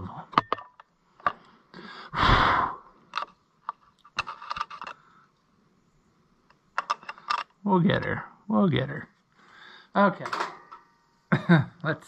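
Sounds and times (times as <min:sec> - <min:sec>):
person sighing: 0:01.8 - 0:02.9
screwdriver clicking and scraping metal: 0:03.1 - 0:05.0, 0:06.8 - 0:07.5.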